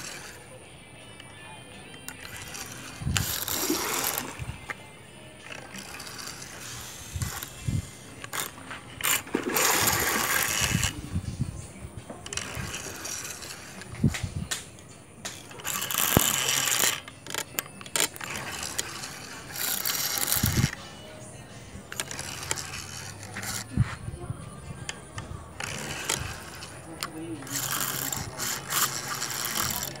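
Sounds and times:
fishing reel ratcheting: 0.0 - 0.5, 2.0 - 4.8, 5.4 - 11.1, 12.2 - 14.6, 15.3 - 20.8, 21.9 - 23.8, 25.2 - 30.0.

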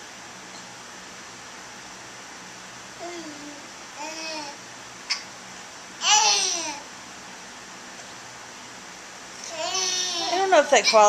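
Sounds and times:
infant squealing: 9.4 - 11.0.

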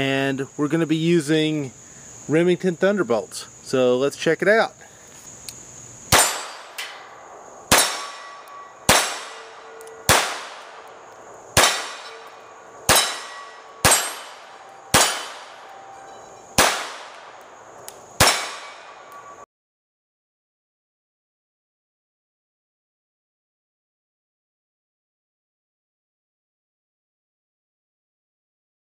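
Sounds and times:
pistol shots with echo: 6.1 - 17.6, 18.2 - 19.4.

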